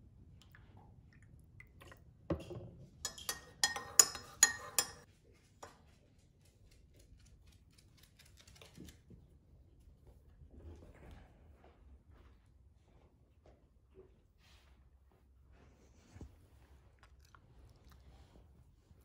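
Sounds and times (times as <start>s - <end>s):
spoon clinking in ceramic mug: 3.0s - 5.1s.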